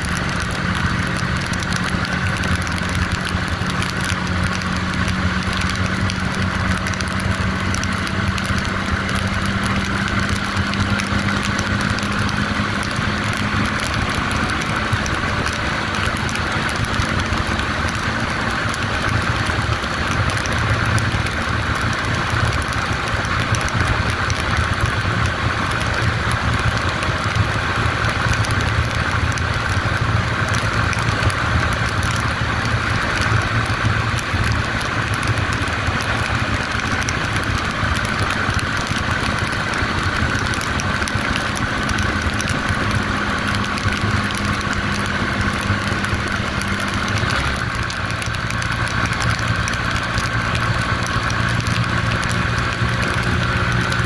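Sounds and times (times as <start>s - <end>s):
motorcycle engine cruising: 0.0s - 54.0s.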